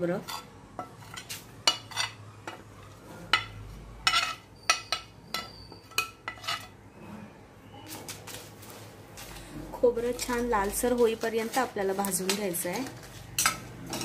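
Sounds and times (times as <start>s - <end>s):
steel spoon clinking and scraping: 0.2s - 2.6s, 3.3s - 6.8s, 10.3s - 14.0s.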